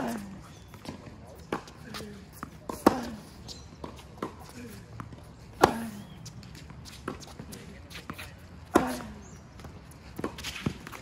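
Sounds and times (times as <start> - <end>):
racket striking ball: 2.3 - 4.4, 5.0 - 6.2, 8.0 - 9.1.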